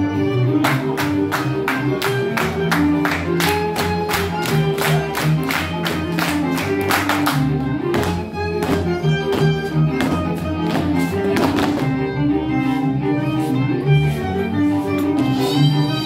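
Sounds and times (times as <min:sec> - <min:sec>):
bowed bass notes: 0:00.0 - 0:16.0
fiddle playing folk dance tune: 0:00.0 - 0:16.0
dancers clapping: 0:00.6 - 0:08.8
dancers' feet thumping: 0:05.7 - 0:12.0.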